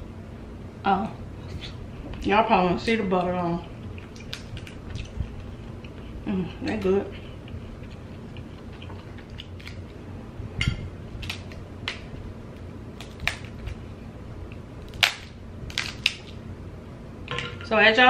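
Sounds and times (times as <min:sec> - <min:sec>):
crab shells cracking: 0:04.0 - 0:05.9, 0:07.5 - 0:10.0, 0:11.2 - 0:12.1, 0:13.0 - 0:13.8, 0:14.5 - 0:16.4.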